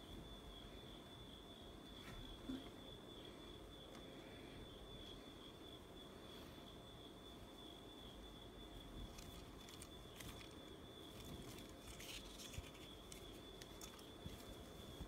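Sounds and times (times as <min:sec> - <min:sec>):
faint high whine: 0:00.0 - 0:15.0
fabric and paper tag rustling: 0:09.1 - 0:15.0.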